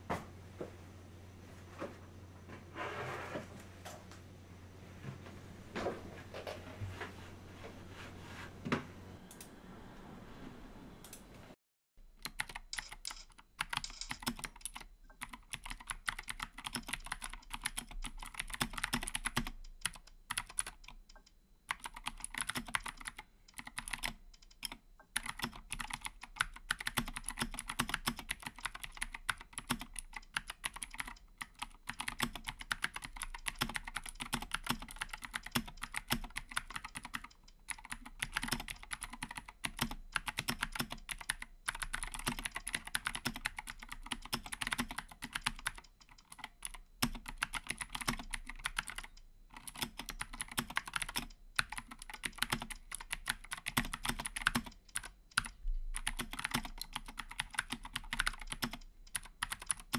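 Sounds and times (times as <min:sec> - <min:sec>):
mechanical keyboard typing: 0:12.2 - 0:59.9.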